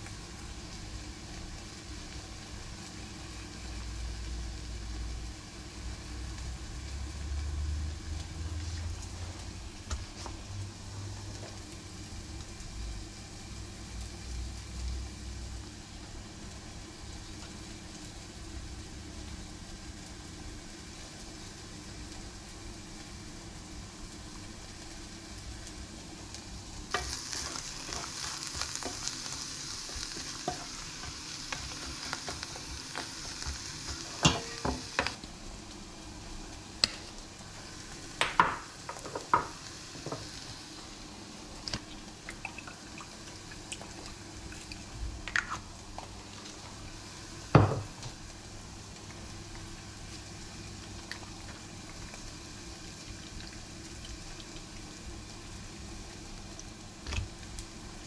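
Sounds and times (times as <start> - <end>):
vegetables sizzling in a pan: 0.0 - 58.0
kitchen utensil clatter: 34.2 - 34.9.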